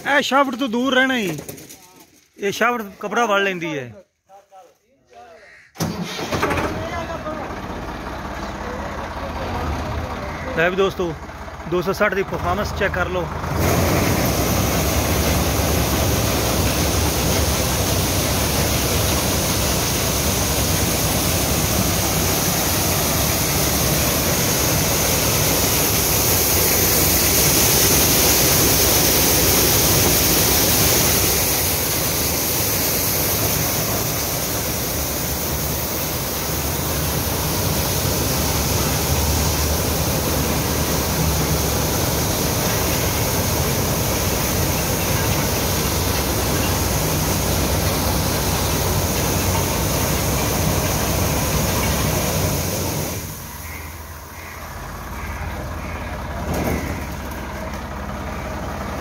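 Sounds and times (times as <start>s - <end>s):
diesel engine humming: 5.8s - 59.0s
corn kernels pouring: 13.6s - 53.5s.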